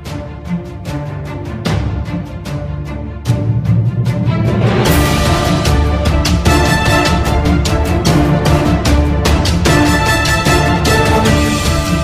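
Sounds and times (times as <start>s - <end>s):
instrumental music with steady beat: 0.0s - 12.0s.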